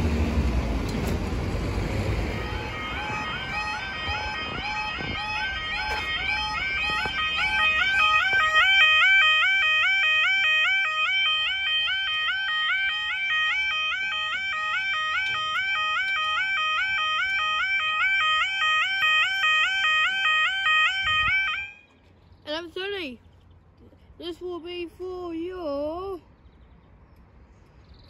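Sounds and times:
two-note electronic warning tone: 2.3s - 21.8s.

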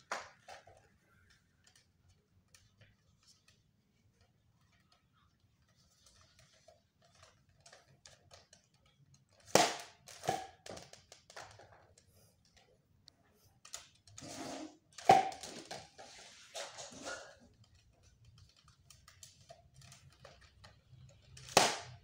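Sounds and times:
toy blaster firing pop: 9.5s - 10.5s, 21.5s - 22.0s.

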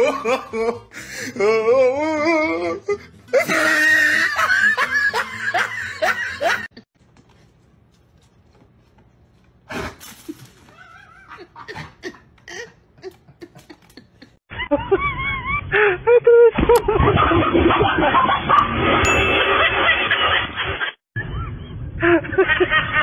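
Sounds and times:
people laughing: 3.3s - 6.8s, 11.0s - 18.6s, 19.2s - 20.9s.

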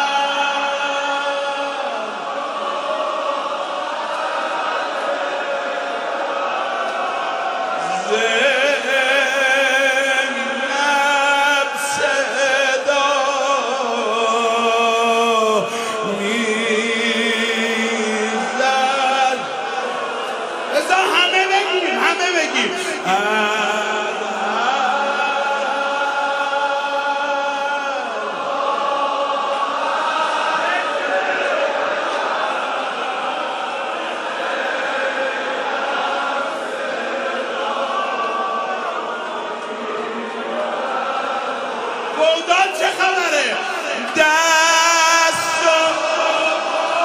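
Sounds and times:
man singing a mourning chant: 0.0s - 2.2s, 7.8s - 32.4s, 42.0s - 47.0s.

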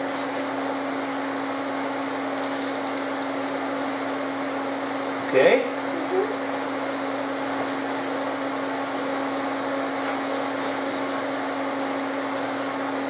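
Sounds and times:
electric fan humming: 0.0s - 13.0s.

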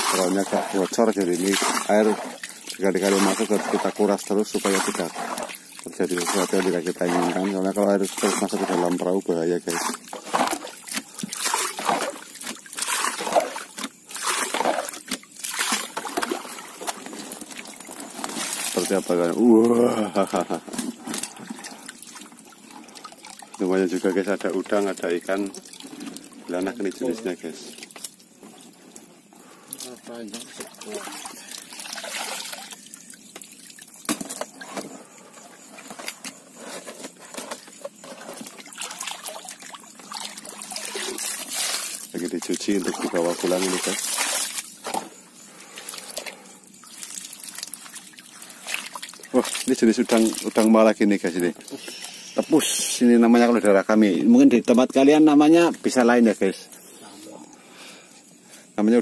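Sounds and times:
water sloshing and splashing: 0.0s - 57.6s.

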